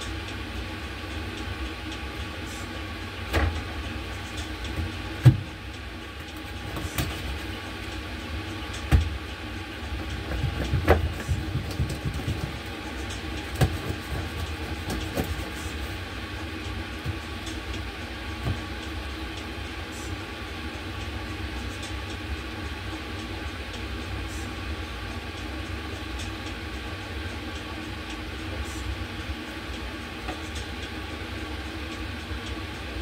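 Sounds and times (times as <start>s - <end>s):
steady low rumble: 0.0s - 33.0s
food preparation knocks and clatter: 10.3s - 12.7s, 13.5s - 15.6s.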